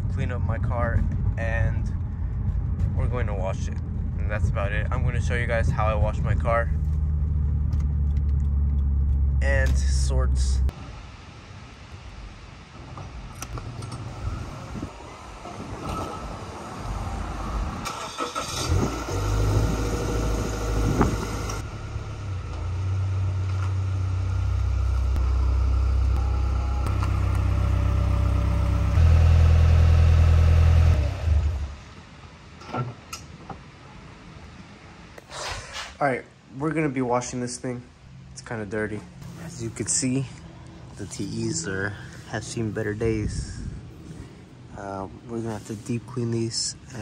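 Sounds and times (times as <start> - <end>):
car engine starting and running: 0.0 - 11.0, 16.2 - 32.0.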